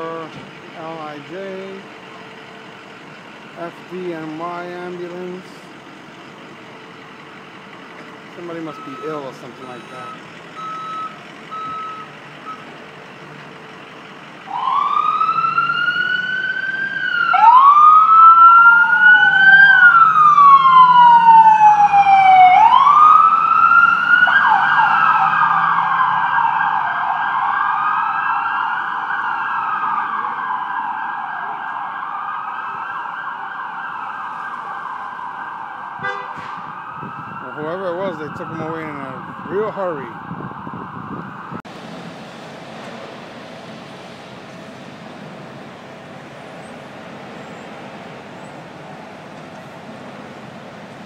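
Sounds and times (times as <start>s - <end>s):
reversing beeps: 8.6s - 12.7s
electronic siren wailing and yelping: 14.5s - 41.6s.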